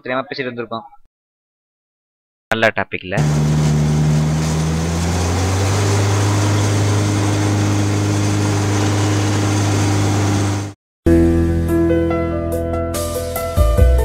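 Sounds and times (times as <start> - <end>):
small train engine drone: 3.2 - 10.8.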